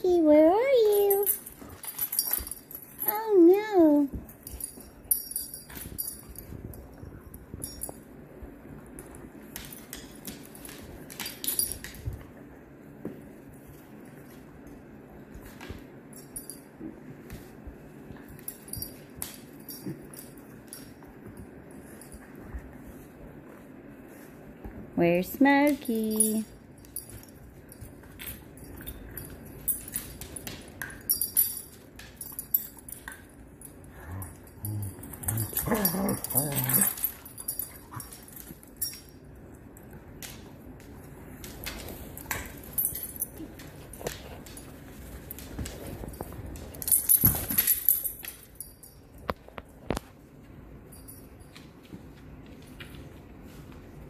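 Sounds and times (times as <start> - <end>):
dog collar tags jingling: 0.2 - 8.1, 25.5 - 39.4, 41.7 - 49.8
dogs scuffling on wooden floor: 40.1 - 54.0.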